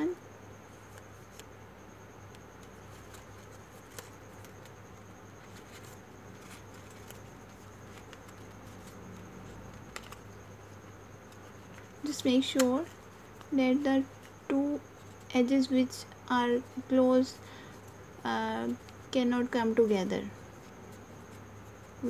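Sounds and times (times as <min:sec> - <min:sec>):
steady low hum: 0:00.0 - 0:22.0
paper rustling and clicking: 0:02.3 - 0:10.4, 0:11.3 - 0:13.5.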